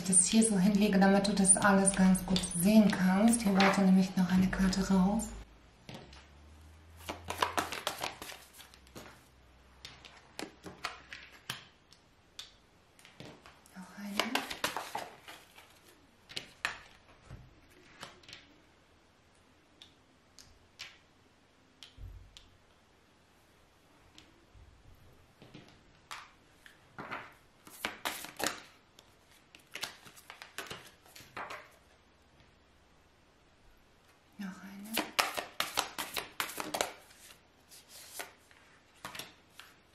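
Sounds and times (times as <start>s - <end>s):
cards rustling and slapping: 7.0s - 11.8s, 13.0s - 17.0s, 25.4s - 31.8s, 34.9s - 39.8s.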